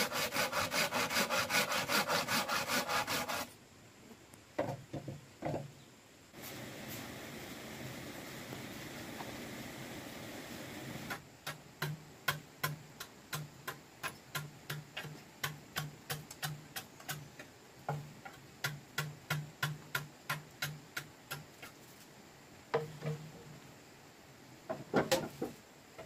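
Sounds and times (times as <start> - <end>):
blade chopping bamboo: 11.4 - 17.3.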